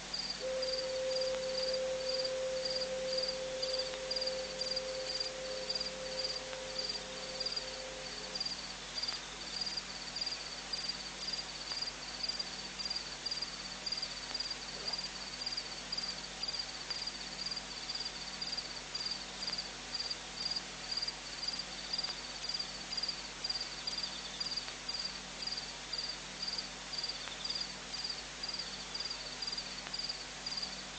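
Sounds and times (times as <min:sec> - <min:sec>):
faint low hum: 0:00.0 - 0:18.0
insects chirping: 0:00.1 - 0:30.8.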